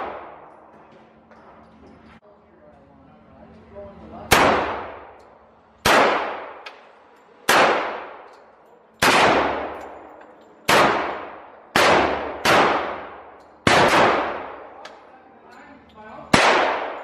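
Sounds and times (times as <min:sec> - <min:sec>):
pistol shots echoing: 0:00.0 - 0:00.7, 0:04.3 - 0:15.0, 0:16.3 - 0:17.0.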